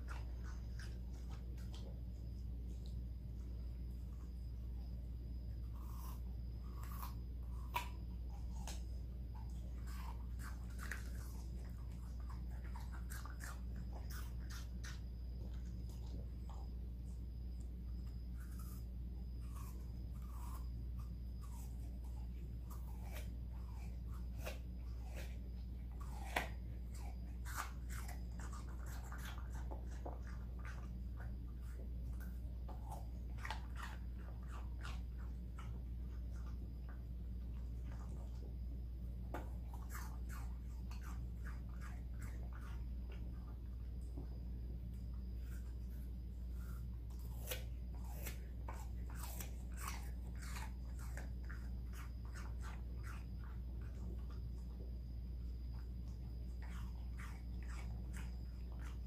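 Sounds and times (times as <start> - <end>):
puppy crunching apple: 0.0 - 59.0.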